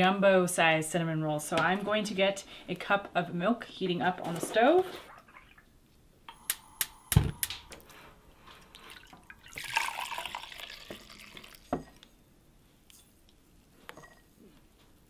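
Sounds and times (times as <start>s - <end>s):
milk pouring: 8.6s - 12.0s.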